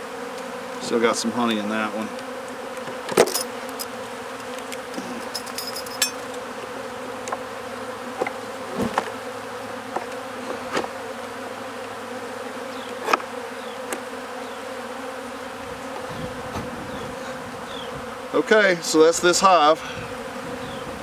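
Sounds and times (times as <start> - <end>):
bees buzzing: 0.0 - 21.0
wooden hive frames knocking: 6.0 - 11.0.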